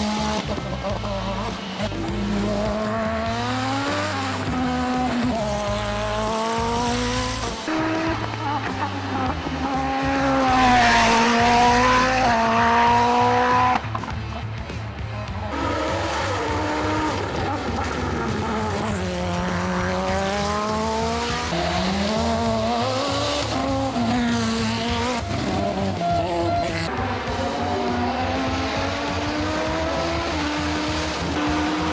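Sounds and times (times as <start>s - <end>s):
race car engines revving: 0.0s - 31.9s.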